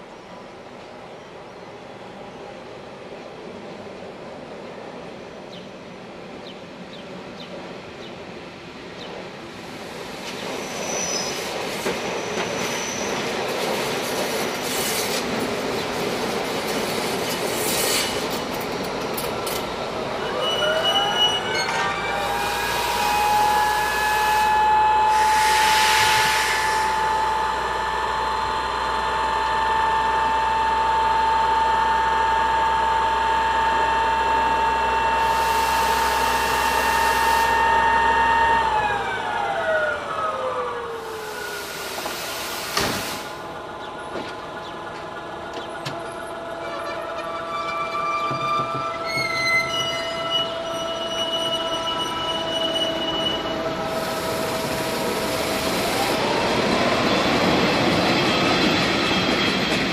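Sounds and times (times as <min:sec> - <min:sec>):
train whine: 0:07.8 - 0:59.9
train wheel and rail clicks: 0:11.6 - 0:20.0, 0:43.8 - 0:50.0, 0:56.6 - 0:59.9
brake squeal: 0:20.2 - 0:24.5, 0:46.6 - 0:55.6
short bursts of hiss: 0:25.2 - 0:26.9, 0:41.2 - 0:43.4.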